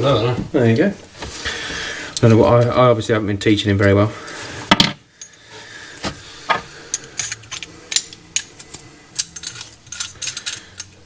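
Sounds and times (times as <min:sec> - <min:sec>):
faint low hum: 0:05.1 - 0:11.0
metal fittings clinking: 0:06.9 - 0:11.0.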